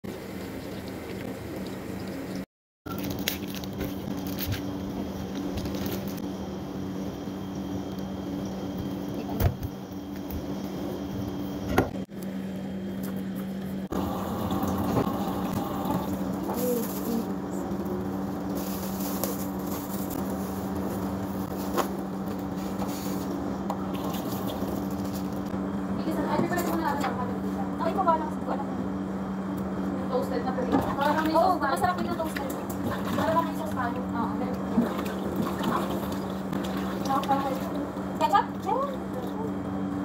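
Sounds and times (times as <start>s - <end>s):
steady low hum: 3.0s - 40.0s
water running into sink: 13.9s - 16.8s, 34.7s - 37.8s.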